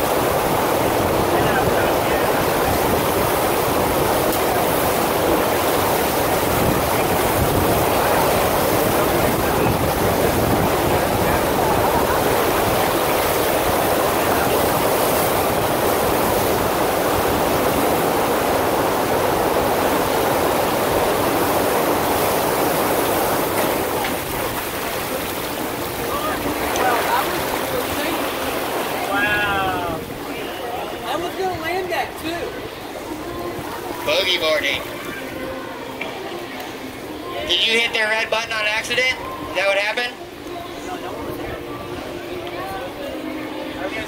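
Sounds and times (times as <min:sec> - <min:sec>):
rushing water: 0:00.0 - 0:44.0.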